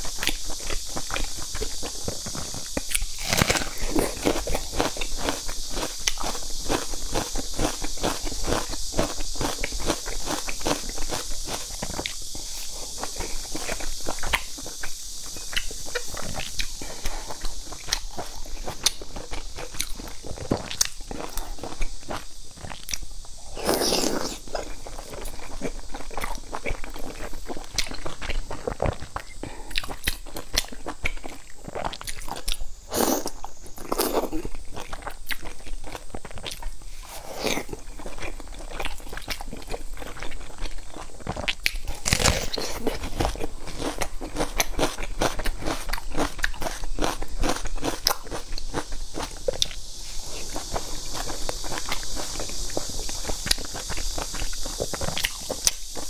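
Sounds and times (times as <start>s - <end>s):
wet chewing mouth sounds: 0.0s - 56.0s.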